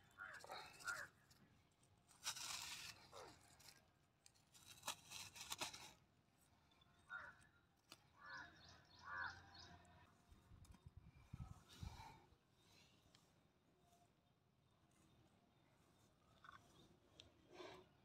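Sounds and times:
faint rustling and scraping: 0.0 - 6.1.

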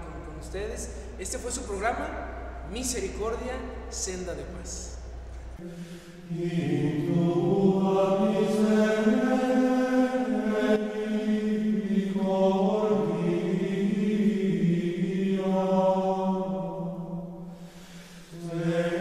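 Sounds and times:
voices singing slow chant: 5.6 - 19.0.

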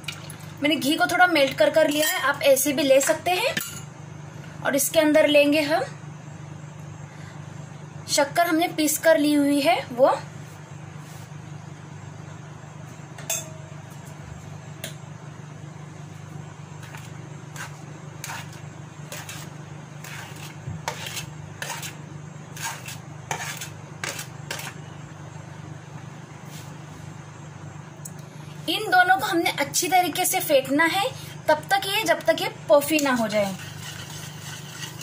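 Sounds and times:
steady low hum: 0.0 - 35.0
spoon scraping on a plate: 16.8 - 22.0, 22.6 - 24.8, 33.4 - 35.0.

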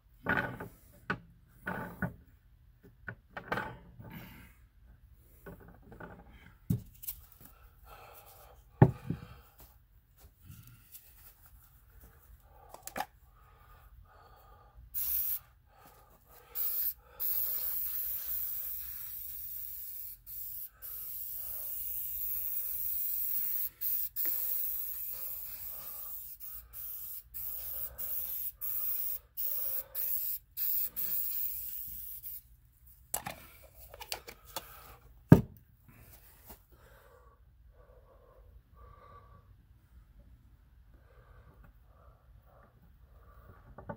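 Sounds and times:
aerosol spray hissing bursts: 15.0 - 15.5, 16.5 - 32.4.

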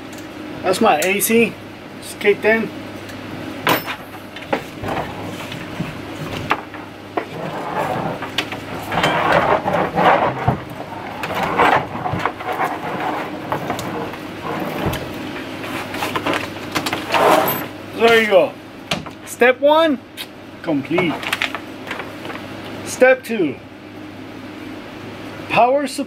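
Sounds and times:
air conditioner humming: 0.0 - 26.0
metal frame parts clicking and rattling: 3.7 - 15.1.

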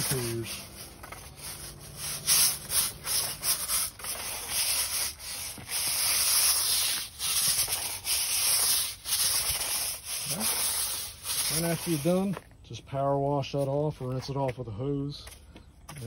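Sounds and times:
push broom scrubbing wet brick: 0.0 - 12.5.

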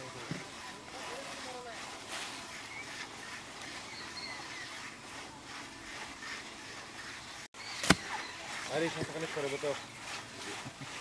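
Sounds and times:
soil scraping: 0.0 - 11.0
steady outdoor hiss: 0.0 - 11.0
faint bird chirps: 2.5 - 5.0, 6.6 - 8.6.

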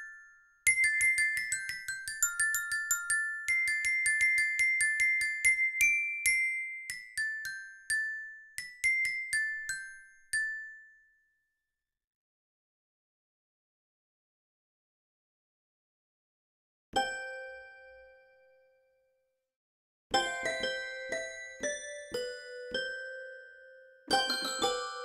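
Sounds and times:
bell-like mallet percussion melody: 20.2 - 25.0.

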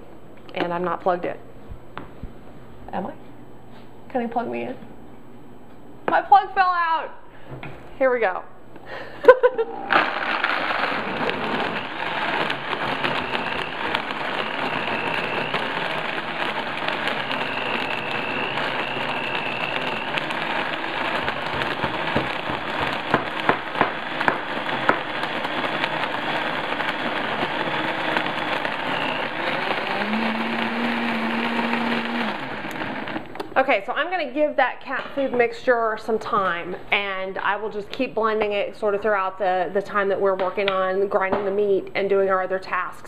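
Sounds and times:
blender motor running: 9.3 - 33.4.

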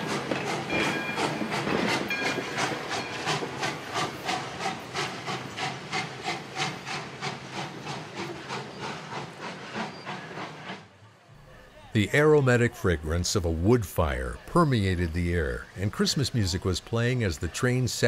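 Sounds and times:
train car rolling past: 0.0 - 11.3.

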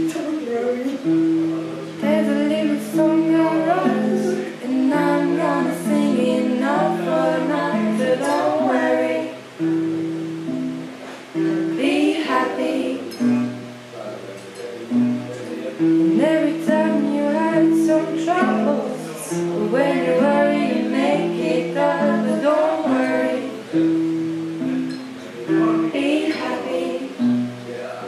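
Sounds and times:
strummed acoustic guitar: 0.0 - 28.0
woman singing: 2.0 - 9.7, 11.6 - 13.4, 16.0 - 23.8, 25.6 - 27.4.

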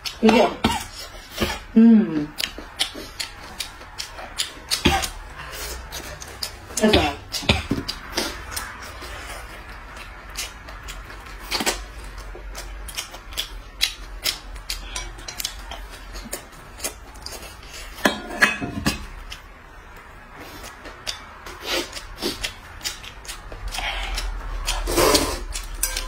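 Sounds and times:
noodles slurped and chewed: 2.3 - 18.0, 20.1 - 26.0.

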